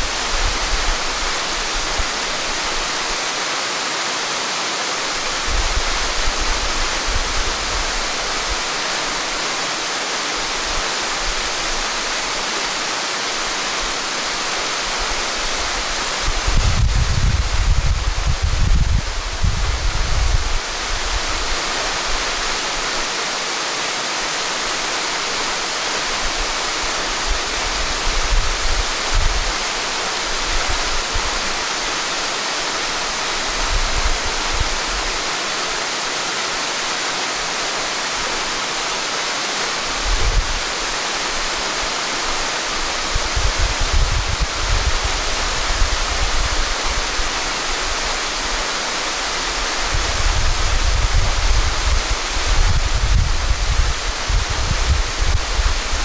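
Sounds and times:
waterfall pouring into a pool: 0.0 - 18.0, 20.6 - 56.0
wind buffeting microphone: 15.5 - 22.3, 27.2 - 31.6, 39.9 - 40.9, 43.0 - 47.8, 49.4 - 56.0.

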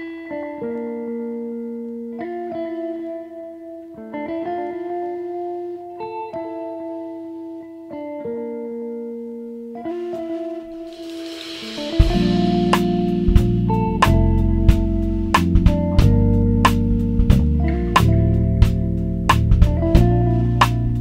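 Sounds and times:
slow sustained background music: 3.1 - 15.4.

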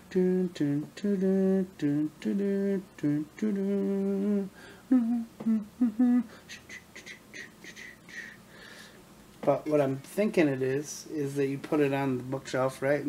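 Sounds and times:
man humming: 0.0 - 8.4.

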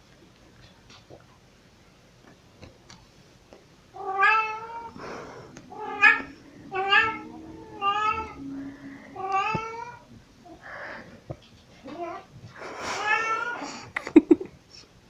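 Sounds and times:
cat meowing: 4.0 - 5.0, 5.6 - 10.1.

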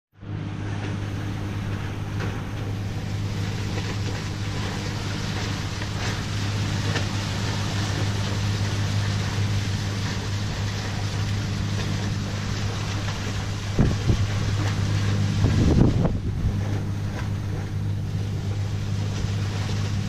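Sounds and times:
boat engine humming: 0.2 - 20.0
water splashing along hull: 0.2 - 20.0
wind noise: 12.6 - 17.8.

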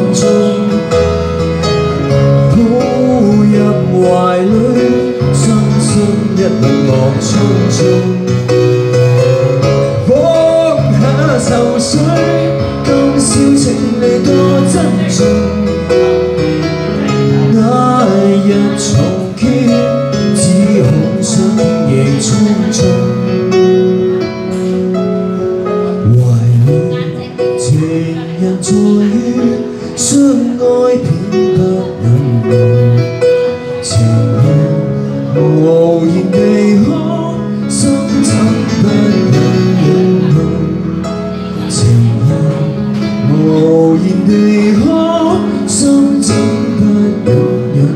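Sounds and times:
person singing into microphone: 0.0 - 16.1, 16.9 - 23.6, 25.6 - 47.9
keyboard chords: 0.0 - 47.9.

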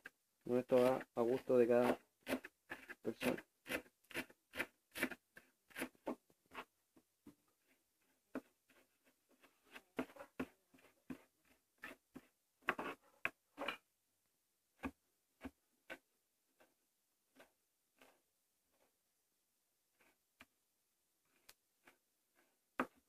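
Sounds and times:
knife chopping on cutting board: 1.8 - 6.2.

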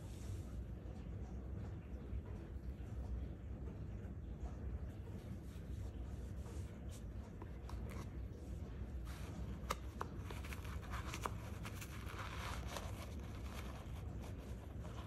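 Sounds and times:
low steady hum: 0.0 - 15.0
paper rustling: 6.9 - 15.0.

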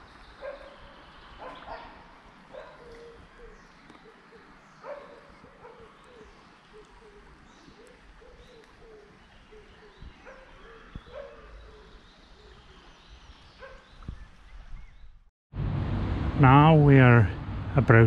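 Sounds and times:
birds chirping: 0.0 - 15.3
low rumble: 15.6 - 18.0.

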